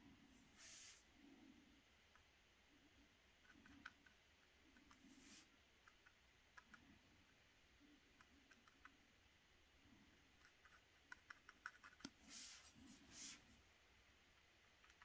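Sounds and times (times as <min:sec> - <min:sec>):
brush dabbing on paper: 0:00.6 - 0:01.0, 0:04.9 - 0:05.6, 0:11.4 - 0:13.6.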